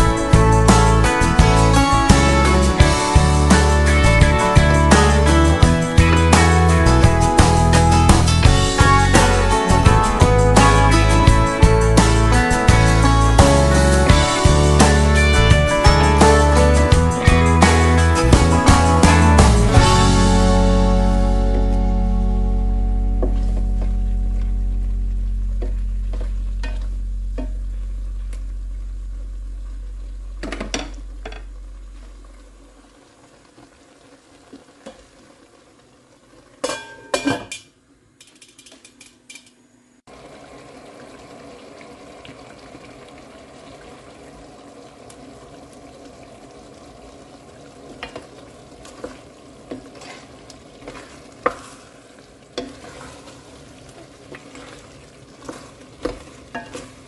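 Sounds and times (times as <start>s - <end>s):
low sustained music note: 20.1s - 32.8s
food sizzling in a pan: 46.4s - 57.0s
spatula scraping a pan: 49.7s - 51.9s, 52.6s - 53.5s, 55.4s - 57.0s.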